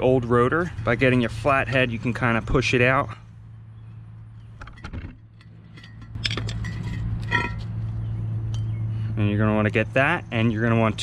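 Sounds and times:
sharp metallic clinks: 5.3 - 7.8.

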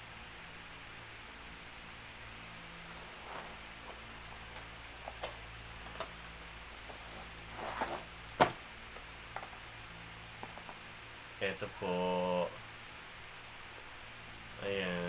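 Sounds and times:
wrapping rustling: 2.8 - 6.2, 6.8 - 8.6.

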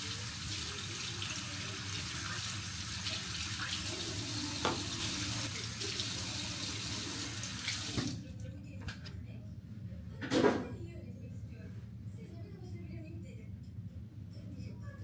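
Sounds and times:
tap water running into sink: 0.0 - 8.2.

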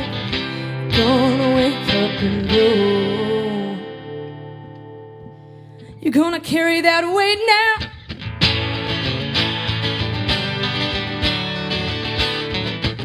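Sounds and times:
singer with vibrato: 0.0 - 4.3, 5.9 - 8.0
acoustic guitars and bass strumming: 0.0 - 6.0, 7.9 - 13.0.

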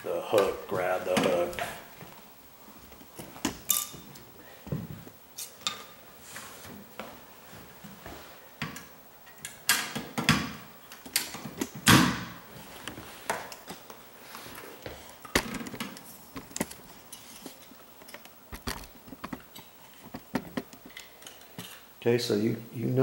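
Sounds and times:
tools clacking and knocking: 17.4 - 21.8.

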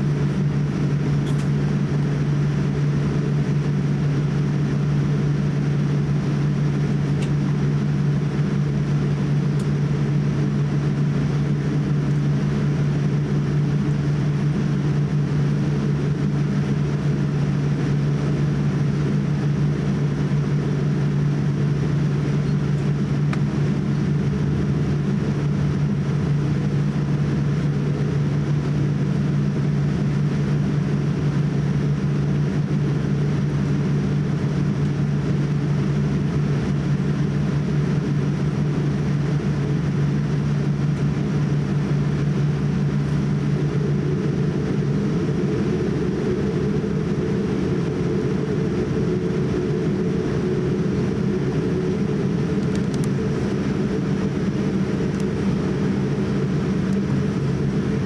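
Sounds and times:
airliner cabin hum: 0.0 - 58.0.

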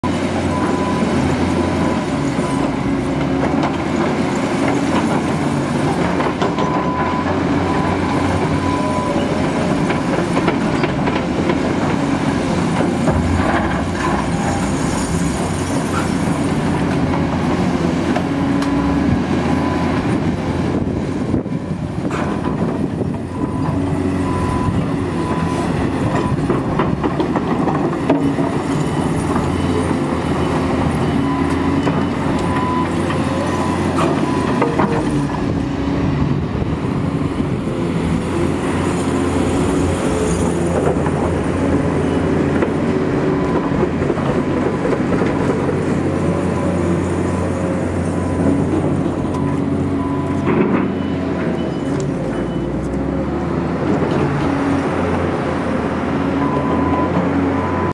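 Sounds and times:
heavy diesel machines working: 0.0 - 57.9
knocks and clanks: 50.3 - 51.9.

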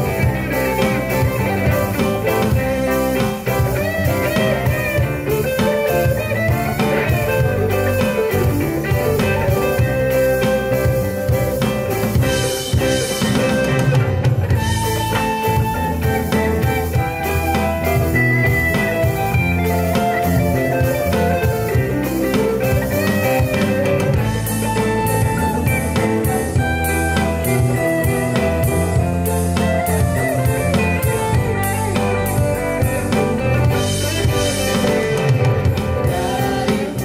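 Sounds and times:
live band playing: 0.0 - 37.0.

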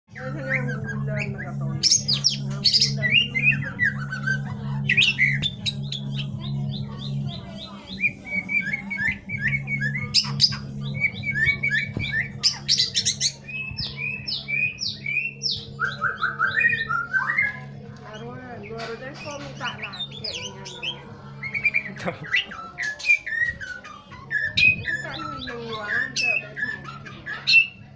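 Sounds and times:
bird singing whistles: 7.9 - 17.7, 18.8 - 27.8.

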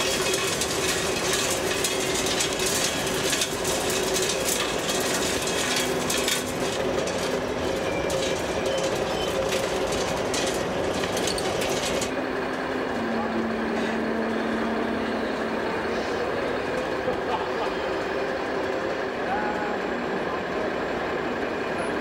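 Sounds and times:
clicks and scrapes: 0.0 - 12.2
busy hall noise: 8.4 - 22.0.

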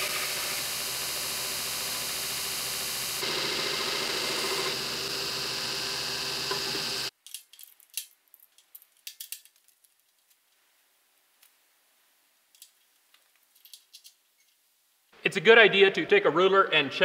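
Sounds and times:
belt grinder grinding steel: 0.0 - 7.1
steel pieces clicking and tapping: 7.1 - 10.4, 12.5 - 14.6.

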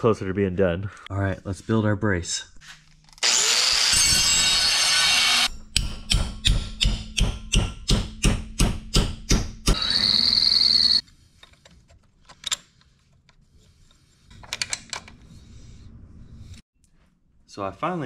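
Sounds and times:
drill boring into steel: 3.2 - 5.5, 9.7 - 11.0.

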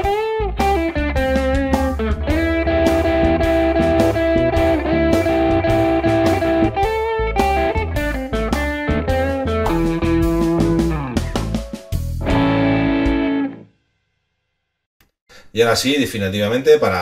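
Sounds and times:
electric guitar blues solo: 0.0 - 11.4, 12.2 - 13.6
backing track: 0.0 - 13.7.

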